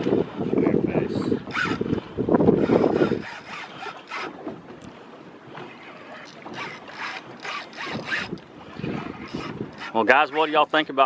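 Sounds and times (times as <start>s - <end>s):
water sloshing against boat: 0.0s - 11.0s
wind buffeting microphone: 0.0s - 11.0s.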